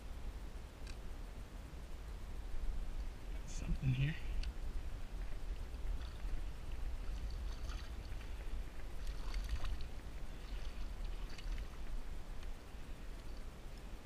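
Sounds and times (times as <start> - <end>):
wind rumble on microphone: 0.0 - 14.0
fish splashing at water surface: 7.3 - 8.2.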